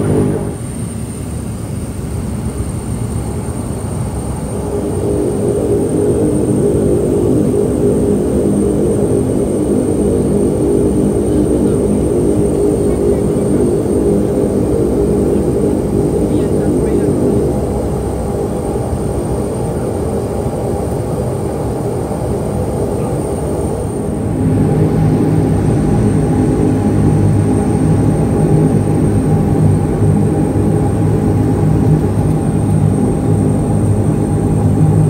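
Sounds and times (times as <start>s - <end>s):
turboprop engine and propeller drone: 0.0s - 35.0s.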